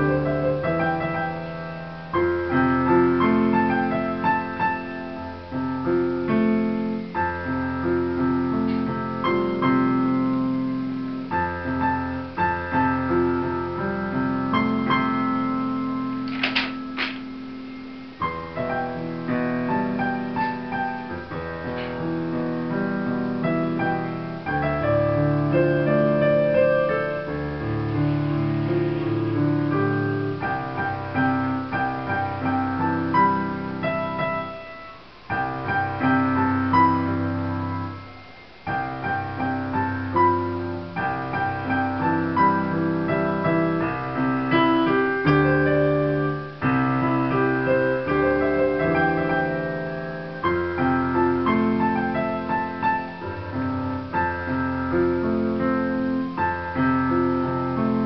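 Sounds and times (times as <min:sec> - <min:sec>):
digital piano chords and melody: 0:00.0 - 0:58.0.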